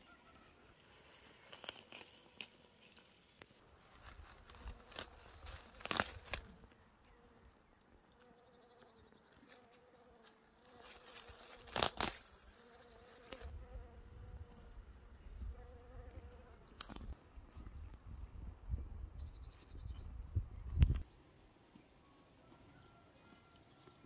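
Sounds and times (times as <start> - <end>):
plant stems rustling: 0.8 - 6.6, 9.4 - 12.5
bees buzzing: 3.9 - 16.8.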